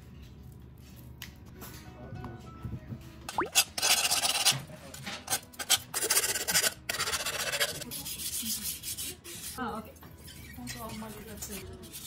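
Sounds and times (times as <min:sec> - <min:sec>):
file rasping on steel: 0:05.3 - 0:12.0.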